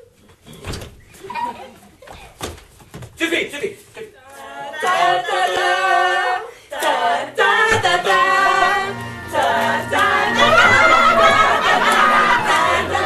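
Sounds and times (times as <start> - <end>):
group of voices singing: 4.3 - 13.0.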